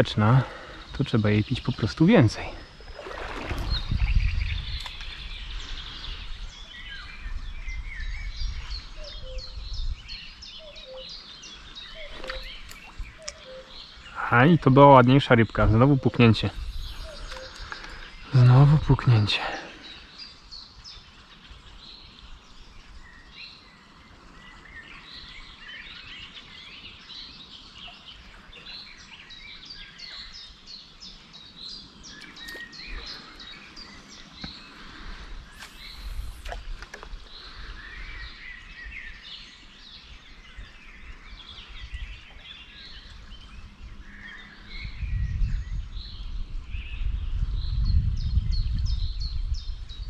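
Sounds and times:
small birds singing: 0.0s - 50.0s
background hiss: 8.3s - 43.4s.

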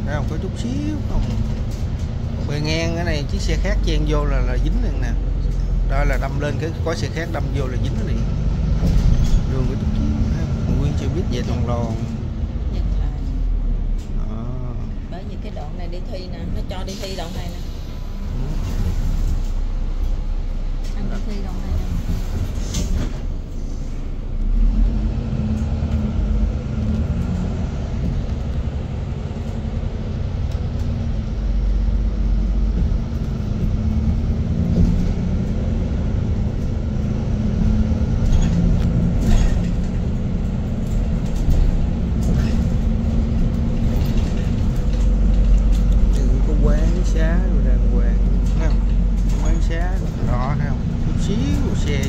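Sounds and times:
bus engine rumble: 0.0s - 52.0s
tyres on road: 0.0s - 52.0s.

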